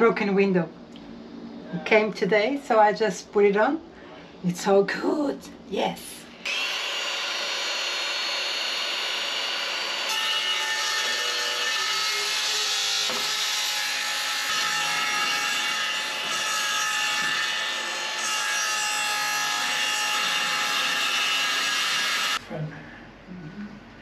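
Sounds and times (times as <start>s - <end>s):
circular saw cutting plywood: 6.5s - 22.4s.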